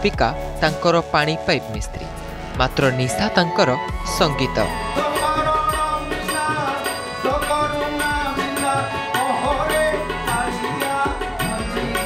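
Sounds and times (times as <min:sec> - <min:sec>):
harmonium chords: 0:00.0 - 0:12.0
man singing: 0:04.7 - 0:12.0.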